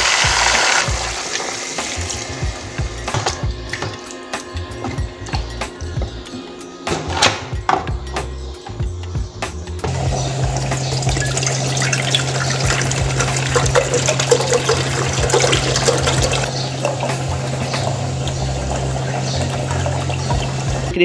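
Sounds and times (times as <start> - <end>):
milk pouring into a metal pot: 9.9 - 20.9.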